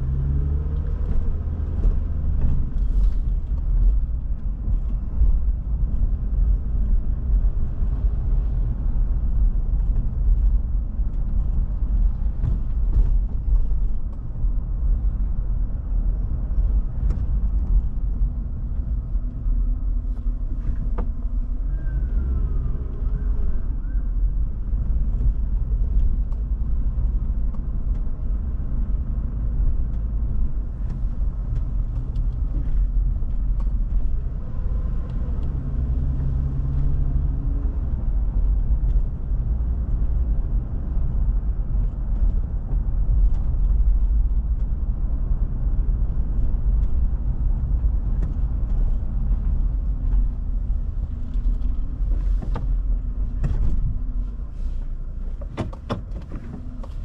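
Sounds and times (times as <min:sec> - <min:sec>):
car engine and tyres rumbling: 0:00.0 - 0:57.0.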